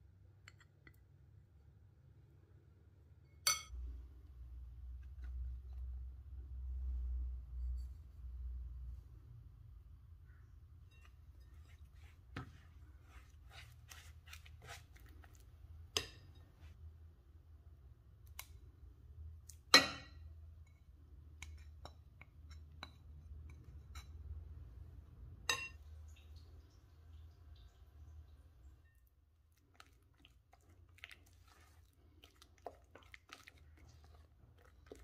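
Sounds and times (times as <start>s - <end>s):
spatula scraping glass bowl: 10.9s - 15.4s.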